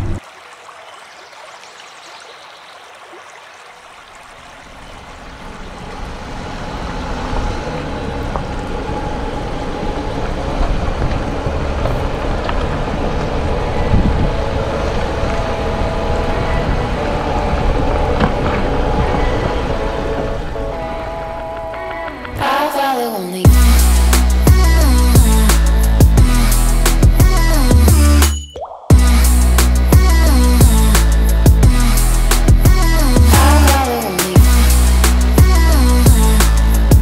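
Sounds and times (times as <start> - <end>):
stream trickling: 0.0 - 22.2
van engine and tyre rumble: 4.2 - 22.4, 23.5 - 28.3, 28.9 - 37.0.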